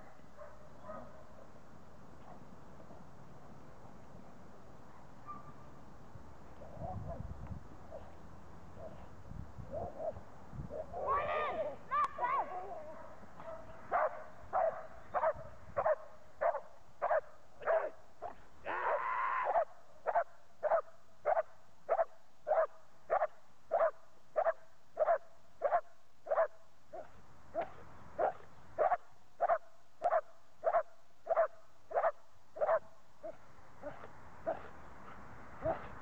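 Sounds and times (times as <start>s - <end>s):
dog barking: 0.0s - 1.4s, 5.2s - 5.6s, 12.8s - 18.4s, 19.5s - 34.7s, 35.6s - 36.0s
longer loud dog sound: 9.7s - 36.0s.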